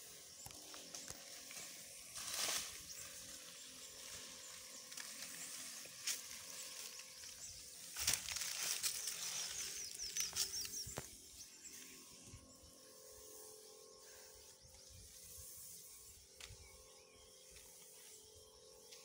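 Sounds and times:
dry leaves rustling: 0.0s - 11.2s.

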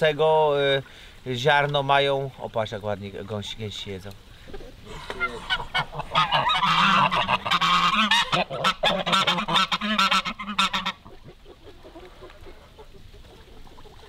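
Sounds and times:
geese honking loudly: 4.9s - 11.0s.

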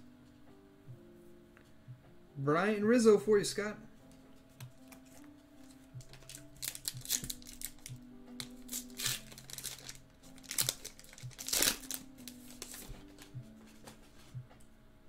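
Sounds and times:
soft background music: 0.0s - 15.0s
foil wrapper tearing and crinkling: 6.0s - 13.4s.

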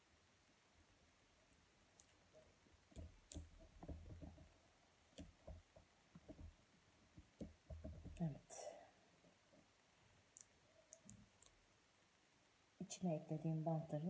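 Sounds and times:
faint clicks and rustling of hands: 1.4s - 11.6s.

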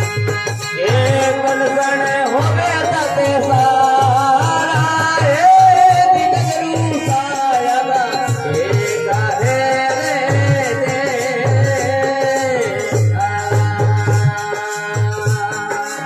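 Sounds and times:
dholak beat: 0.0s - 16.0s
harmonium melody: 0.0s - 16.0s
light rattling percussion: 0.0s - 16.0s.

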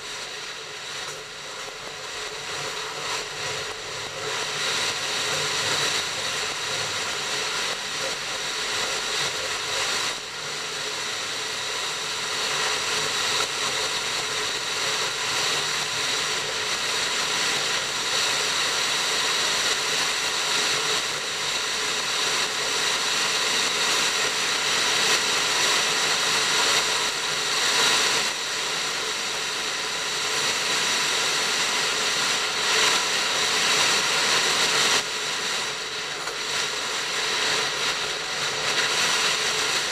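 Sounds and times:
steady whine: 0.0s - 39.9s
train running on track: 0.0s - 39.9s.

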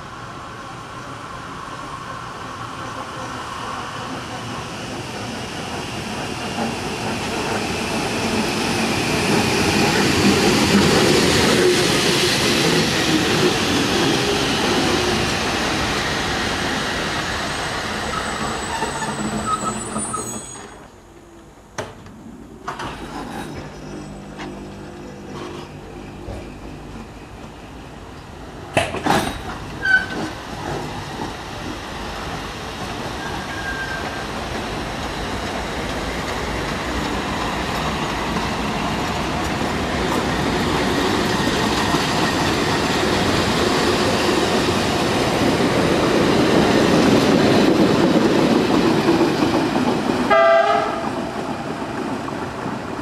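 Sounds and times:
train running on rails: 0.0s - 53.0s
high wheel squeal: 17.4s - 20.9s, 29.8s - 30.3s, 33.2s - 34.4s.

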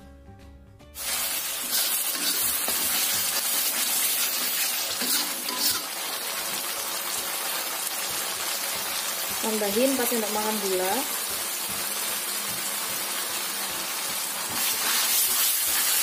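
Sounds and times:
background music: 0.0s - 16.0s
metal spatula scraping wok: 1.0s - 6.2s, 14.5s - 16.0s
paste sizzling in hot oil: 1.0s - 16.0s.

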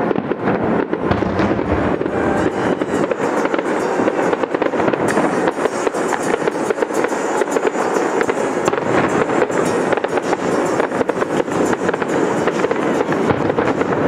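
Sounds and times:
fireworks bursting: 0.0s - 14.0s.

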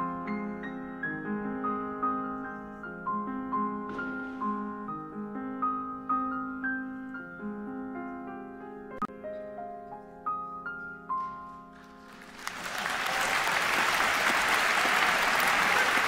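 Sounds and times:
piano melody over chords: 0.0s - 12.3s.

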